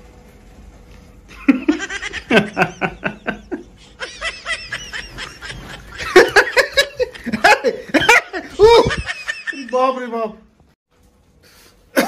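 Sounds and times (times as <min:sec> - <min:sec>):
laughter in rapid bursts: 0:01.3 - 0:09.7.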